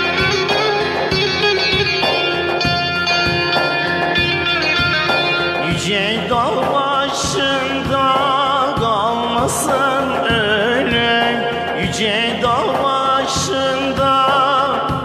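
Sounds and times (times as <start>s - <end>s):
backing beat: 0.0s - 15.0s
electric saz plucked melody: 0.0s - 15.0s
man singing with vibrato: 5.5s - 15.0s.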